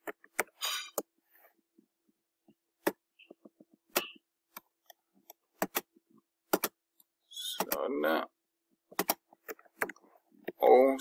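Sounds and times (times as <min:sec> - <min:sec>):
mouse and keyboard clicks: 0:06.5 - 0:06.8.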